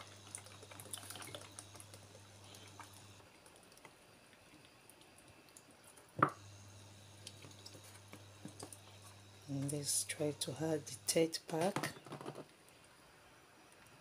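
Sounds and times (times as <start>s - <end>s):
cream dripping and splashing: 0.0s - 6.0s
low steady hum: 0.0s - 14.0s.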